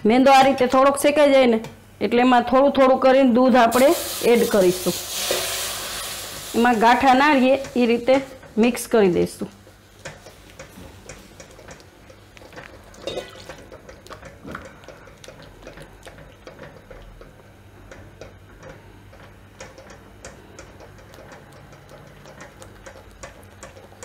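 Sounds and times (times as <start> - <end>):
spatula knocking metal pan: 13.1 - 13.5.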